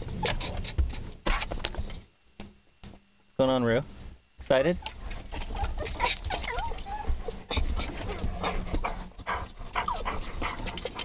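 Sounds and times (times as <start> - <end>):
dogs whining: 0.0 - 1.1, 4.8 - 11.0
dogs panting and snuffling: 0.0 - 2.0, 4.8 - 11.0.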